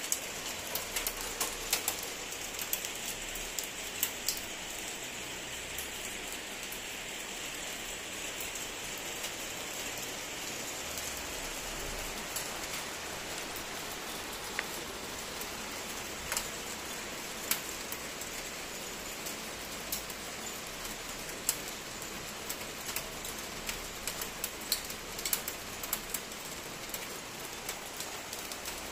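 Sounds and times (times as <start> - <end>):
hailstones ticking on tiles: 0.0 - 28.9
rain hissing: 0.0 - 28.9.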